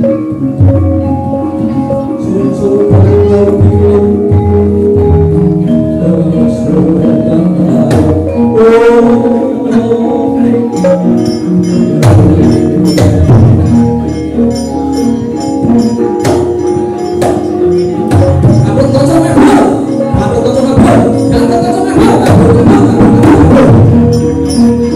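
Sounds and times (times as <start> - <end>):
gamelan ensemble playing: 0.0 - 24.9
sharp percussive strikes: 7.7 - 9.9, 10.7 - 24.9.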